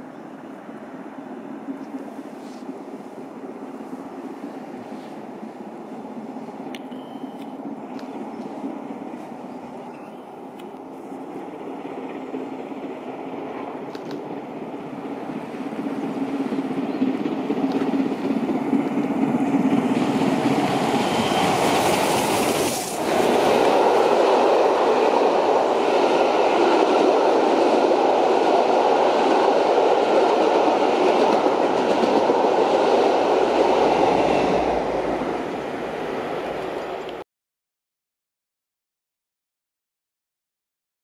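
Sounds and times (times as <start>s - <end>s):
steam train passing: 0.0s - 37.2s
train wheels clattering on rails: 11.6s - 35.3s.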